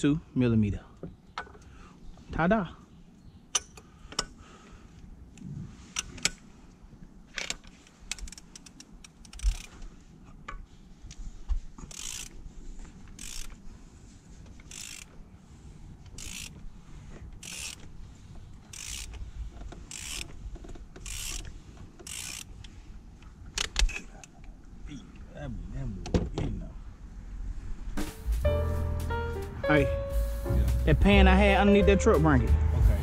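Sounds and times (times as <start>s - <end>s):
ratchet wrench clicking: 8.1s - 9.7s, 11.9s - 12.4s, 13.1s - 13.5s, 14.6s - 15.1s, 16.1s - 16.6s, 17.4s - 17.9s, 18.7s - 19.2s, 19.8s - 20.4s, 21.0s - 22.7s.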